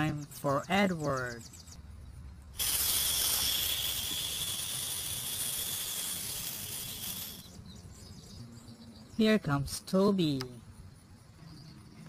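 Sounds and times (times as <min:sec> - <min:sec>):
steady hiss: 0:02.4 - 0:07.6
thin high whistle: 0:02.6 - 0:07.6.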